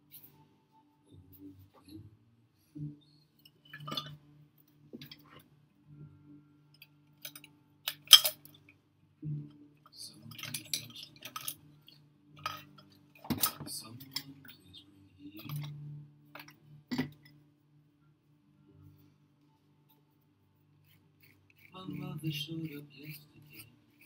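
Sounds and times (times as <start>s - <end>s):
small tools clicking and scraping: 6.8s - 8.6s, 10.2s - 11.7s.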